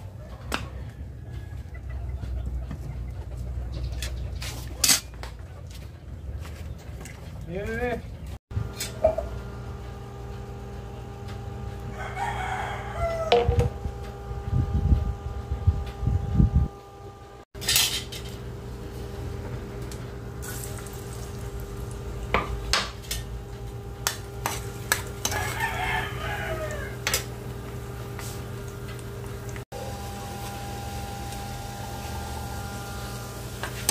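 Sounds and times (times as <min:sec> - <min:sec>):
steady hum: 0:08.6 - 0:33.9
rooster crowing: 0:11.7 - 0:13.9, 0:25.2 - 0:27.2
metal pan and utensils clinking: 0:17.6 - 0:18.3.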